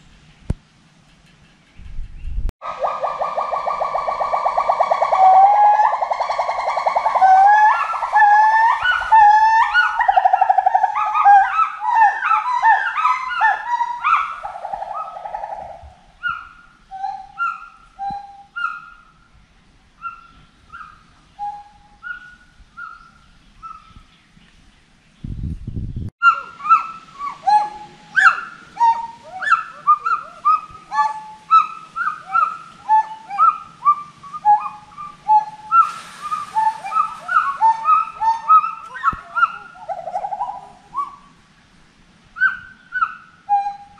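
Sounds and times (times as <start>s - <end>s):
monkeys hooting: 2.6s - 19.0s, 26.2s - 41.3s.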